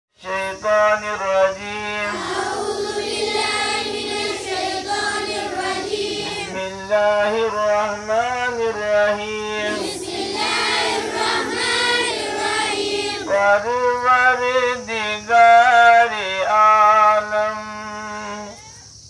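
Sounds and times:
man singing into a microphone: 0.2 - 2.1, 6.5 - 9.7, 13.3 - 18.5
children singing together: 1.8 - 7.2, 9.4 - 13.6.

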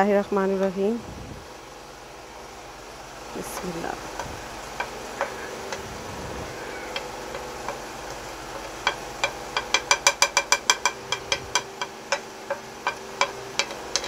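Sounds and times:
metal spoon tapping on plate: 8.8 - 14.0.

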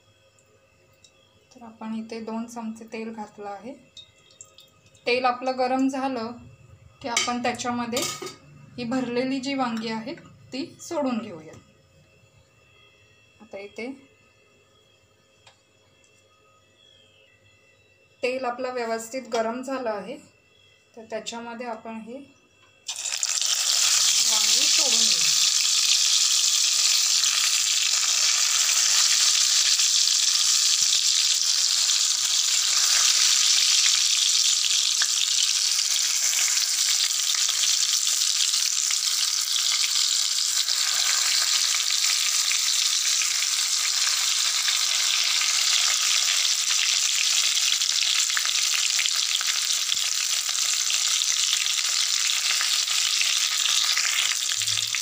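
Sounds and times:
eggplants sizzling in oil: 22.8 - 55.0.

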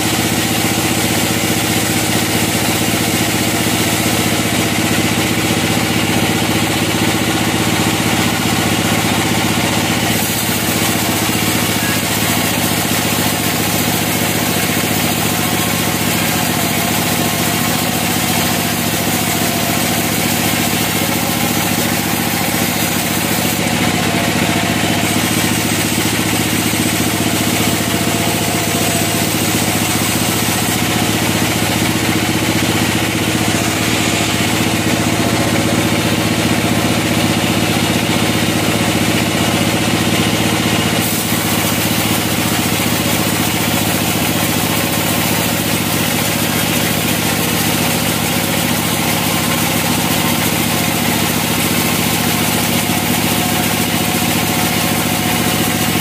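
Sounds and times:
band sawmill sawing log: 0.0 - 56.0.

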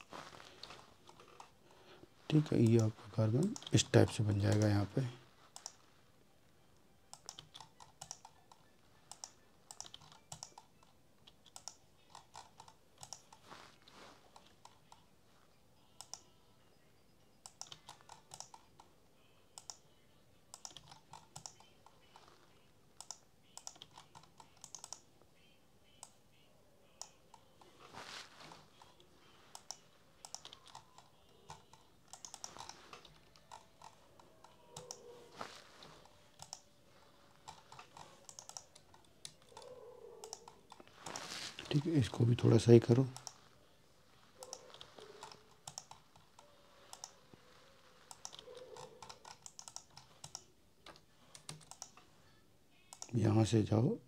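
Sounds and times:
keyboard and mouse clicking: 3.4 - 4.8, 7.1 - 13.4, 16.0 - 16.3, 17.4 - 18.9, 19.6 - 19.8, 20.5 - 22.0, 23.0 - 25.1, 28.8 - 35.1, 35.8 - 36.7, 37.4 - 43.4, 44.4 - 47.3, 48.0 - 52.0, 52.9 - 53.2.

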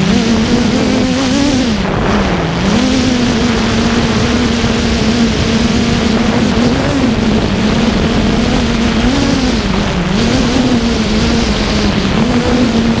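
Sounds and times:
drone motors humming: 0.0 - 13.0
heavy wind noise: 0.0 - 13.0.

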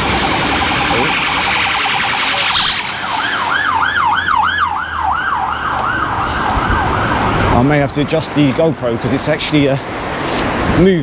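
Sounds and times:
siren yelping: 0.0 - 7.5.

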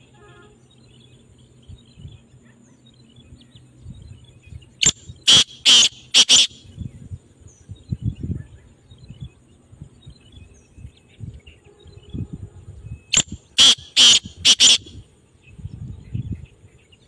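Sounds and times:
bird calling harsh grating notes: 4.8 - 6.6, 13.2 - 15.0.

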